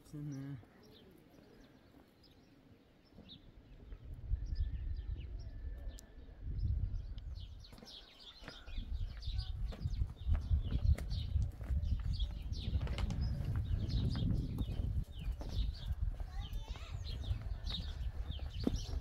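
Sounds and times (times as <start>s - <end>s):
small birds chirping: 0.0s - 19.0s
wind gusts on microphone: 3.8s - 8.0s, 8.6s - 19.0s.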